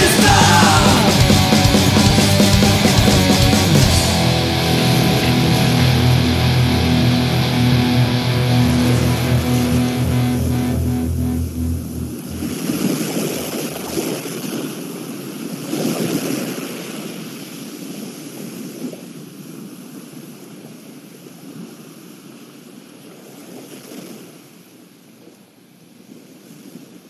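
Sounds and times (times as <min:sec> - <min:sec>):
ocean waves washing in: 0:04.0 - 0:17.5.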